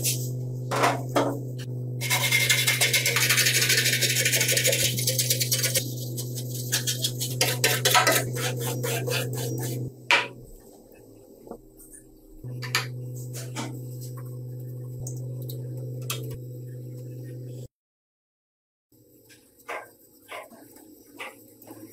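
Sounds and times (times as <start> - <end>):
low hum: 0.0 - 17.7
wire brush scrubbing rusty steel: 2.0 - 9.9.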